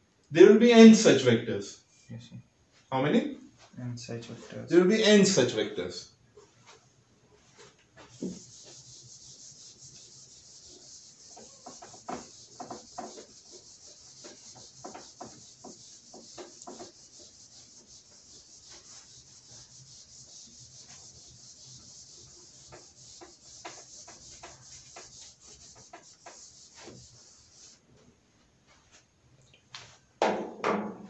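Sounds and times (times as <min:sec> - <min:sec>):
eraser wiping a whiteboard: 0:07.4 - 0:27.8.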